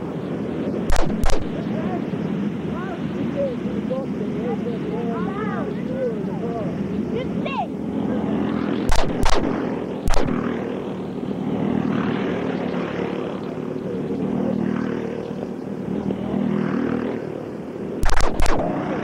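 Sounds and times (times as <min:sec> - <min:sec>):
go-kart engines droning: 0:00.0 - 0:19.0
sharp clicks: 0:00.9 - 0:01.7, 0:08.9 - 0:10.4, 0:18.0 - 0:18.7.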